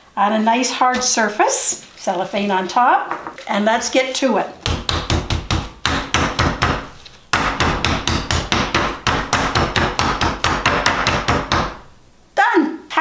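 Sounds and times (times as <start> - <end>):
meat mallet pounding: 4.6 - 11.9.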